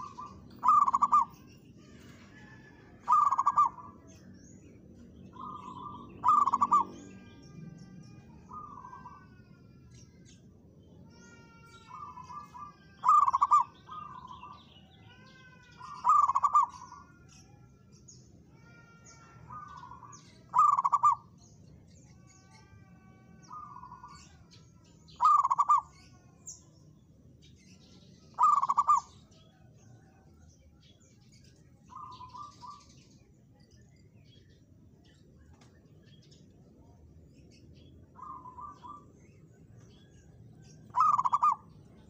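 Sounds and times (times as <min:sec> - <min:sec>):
dove cooing: 0:00.0 - 0:04.0, 0:05.3 - 0:07.3, 0:11.9 - 0:14.2, 0:15.8 - 0:17.0, 0:19.5 - 0:21.3, 0:25.2 - 0:25.9, 0:28.4 - 0:29.1, 0:40.9 - 0:41.7
small birds chirping: 0:00.0 - 0:42.0.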